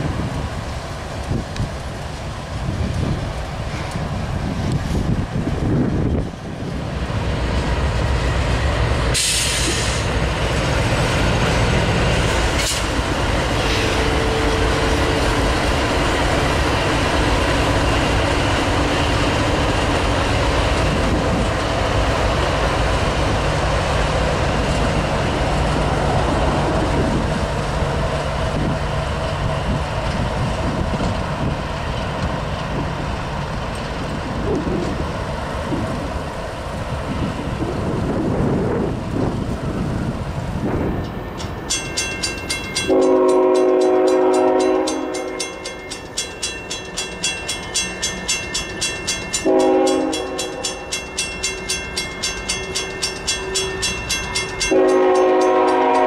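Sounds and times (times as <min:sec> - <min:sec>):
freight cars rumbling over rails: 0:00.0 - 0:56.0
train wheel squeal: 0:41.0 - 0:56.0.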